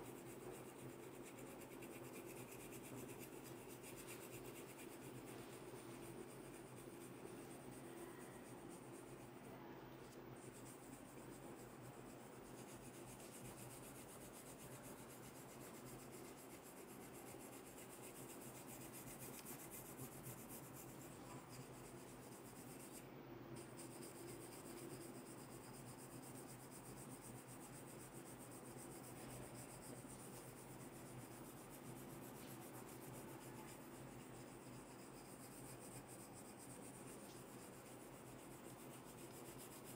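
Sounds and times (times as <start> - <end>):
comb scratching through hair: 10.4 - 23.0, 23.6 - 39.9.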